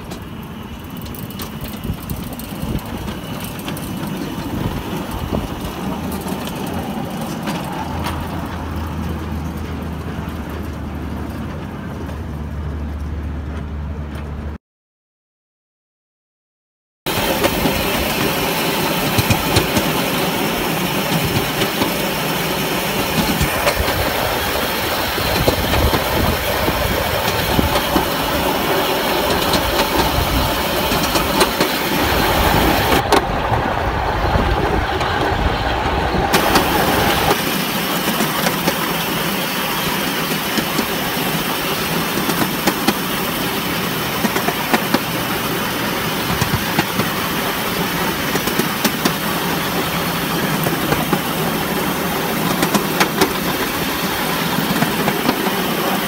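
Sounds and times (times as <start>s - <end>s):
miniature locomotive running: 0.0s - 14.5s, 17.1s - 56.0s
wheels clicking on rails: 0.0s - 14.6s, 17.1s - 56.0s.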